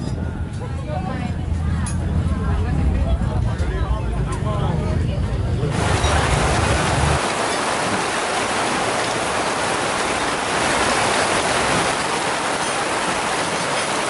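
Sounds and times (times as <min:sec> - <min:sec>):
heavy rain falling: 0:05.7 - 0:14.0.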